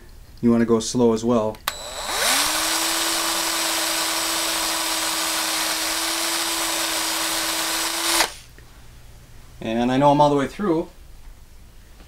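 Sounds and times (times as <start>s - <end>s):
hand drill drilling metal: 1.7s - 8.5s.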